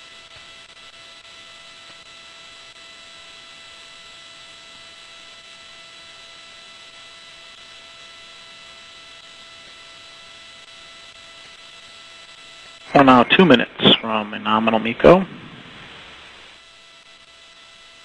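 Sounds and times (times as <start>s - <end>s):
electronic hiss: 12.6s - 16.6s
faint steady tonal hum: 12.8s - 16.5s.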